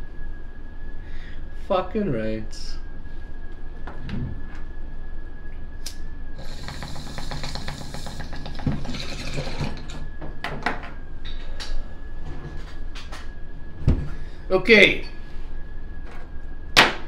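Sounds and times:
water bubbling in bong: 6.4s - 10.0s.

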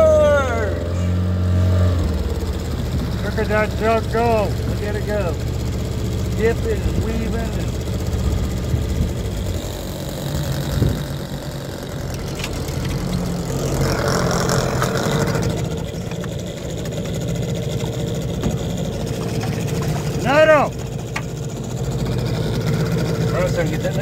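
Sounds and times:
boat motor running: 0.0s - 24.0s.

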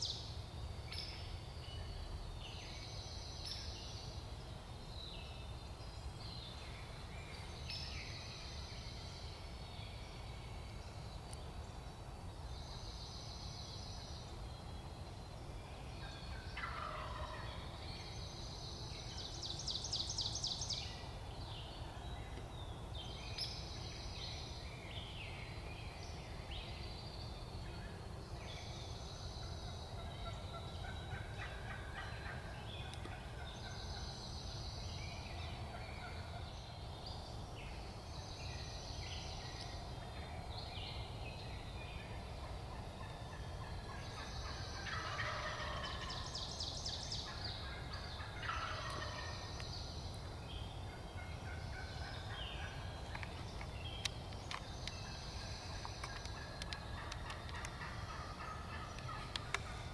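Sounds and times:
small bird calls: 5.0s - 59.9s
turkey gobbling: 16.6s - 17.6s, 42.7s - 46.2s, 47.3s - 49.5s, 55.7s - 59.4s.

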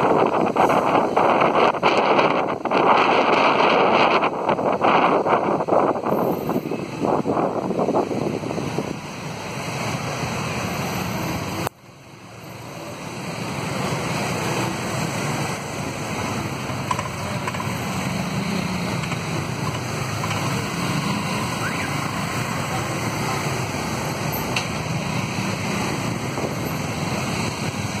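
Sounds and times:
wind buffeting microphone: 0.0s - 9.3s
motorbike engines: 0.0s - 28.0s
street traffic: 0.0s - 28.0s.

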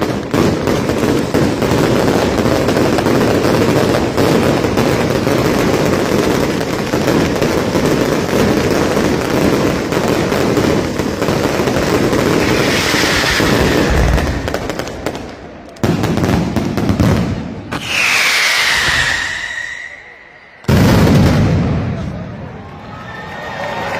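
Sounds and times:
firecracker bangs and crackling: 0.0s - 22.5s
falling whistle: 17.7s - 20.6s.

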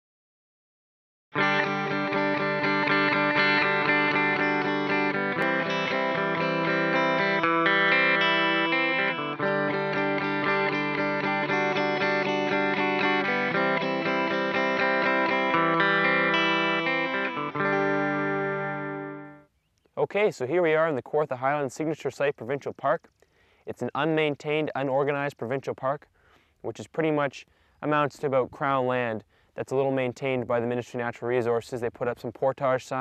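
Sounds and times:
plucked guitar music: 1.3s - 19.5s.

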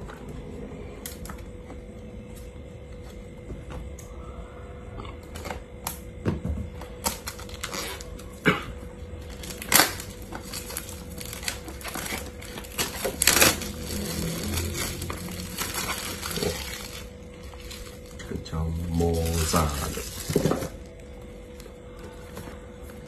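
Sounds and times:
packaging clicks and rustles: 7.0s - 8.4s, 9.2s - 23.0s
packaging snaps: 9.3s - 18.1s.

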